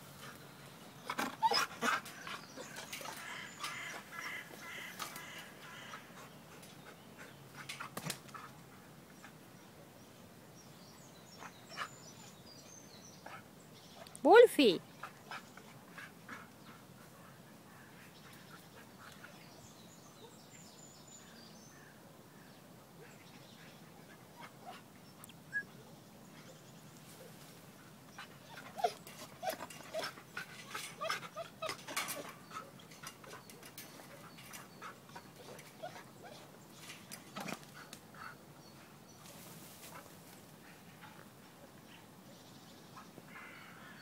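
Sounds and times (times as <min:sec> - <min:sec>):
dog whining and yipping: 0:01.3 - 0:01.8, 0:25.5 - 0:25.7, 0:28.5 - 0:30.1.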